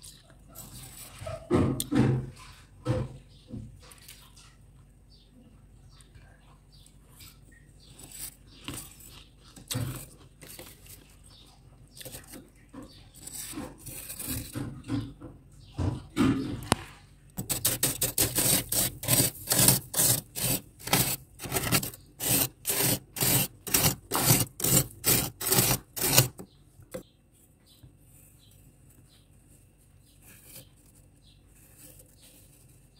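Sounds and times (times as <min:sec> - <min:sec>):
metal spoon scraping frost: 0:13.1 - 0:14.6, 0:17.4 - 0:27.0.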